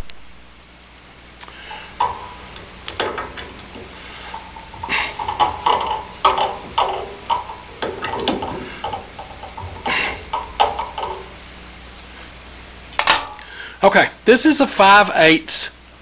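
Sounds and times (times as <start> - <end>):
metal clicks: 1.4 - 11.4
short squeaks of end mill: 1.6 - 11.4.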